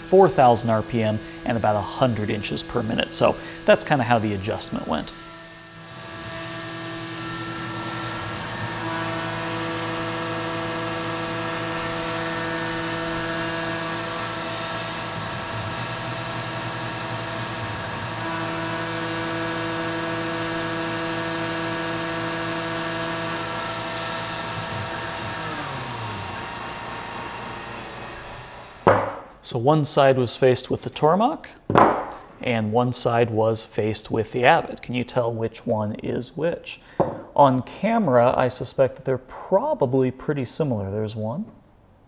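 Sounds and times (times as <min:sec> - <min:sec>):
mist coolant hissing: 0:00.0 - 0:06.2
milling spindle whine: 0:00.0 - 0:28.8
metal cutting noise: 0:00.0 - 0:29.3.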